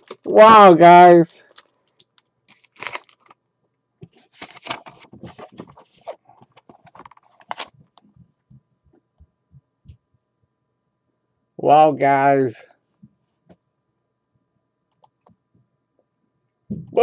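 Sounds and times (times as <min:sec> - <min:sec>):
paper and cardboard rustling: 0:02.5 - 0:03.4, 0:04.0 - 0:08.0.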